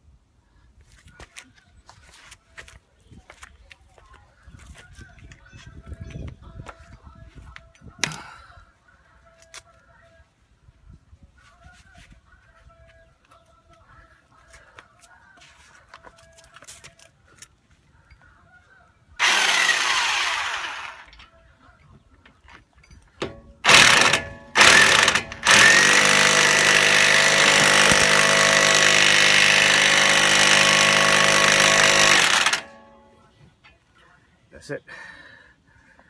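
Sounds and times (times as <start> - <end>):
electric impact wrench bursts: 19.2 - 21.1, 23.6 - 33.0.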